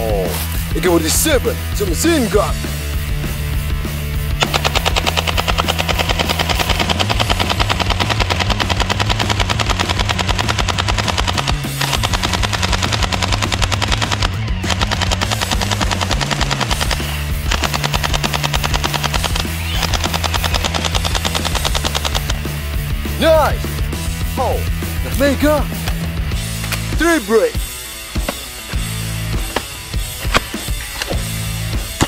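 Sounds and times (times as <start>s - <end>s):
background music with bass line: 0.0s - 32.0s
toy blaster rapid firing: 4.4s - 22.4s.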